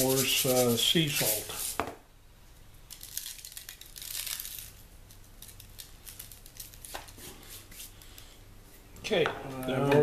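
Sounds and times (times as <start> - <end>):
hands rubbing: 0.0 - 1.8, 5.4 - 8.3.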